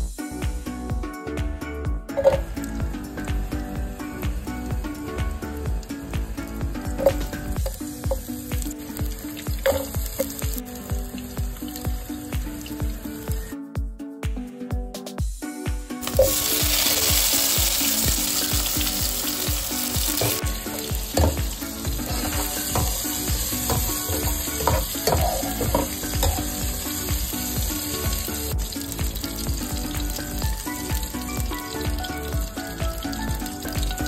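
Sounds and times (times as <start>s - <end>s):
vegetables sizzling in hot oil: 5.7s - 13.5s, 16.0s - 34.0s
spatula scraping pan: 20.1s - 26.5s.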